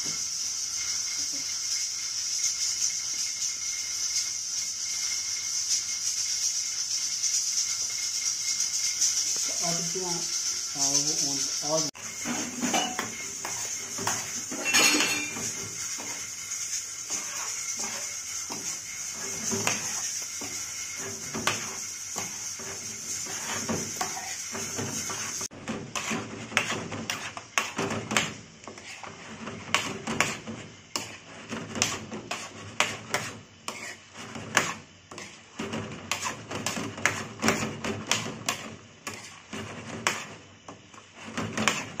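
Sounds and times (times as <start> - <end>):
frying hiss: 0.0 - 42.0
metal spatula scraping pan: 11.2 - 42.0.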